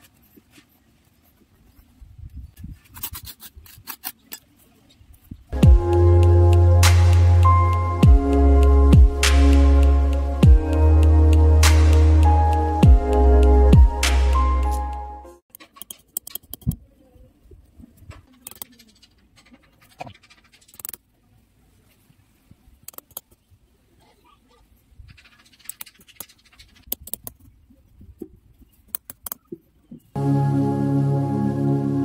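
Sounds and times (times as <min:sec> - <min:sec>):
background music: 0:05.6 - 0:15.4, 0:30.2 - 0:32.0.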